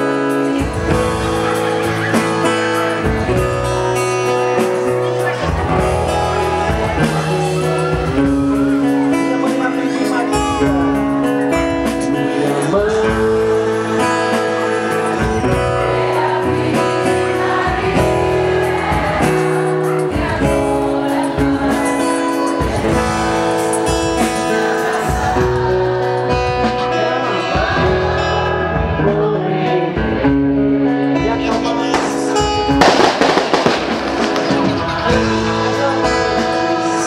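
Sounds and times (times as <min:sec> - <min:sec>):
guitar: 0:00.0 - 0:37.0
person singing: 0:00.0 - 0:37.0
steady beat: 0:00.6 - 0:28.2, 0:31.2 - 0:37.0.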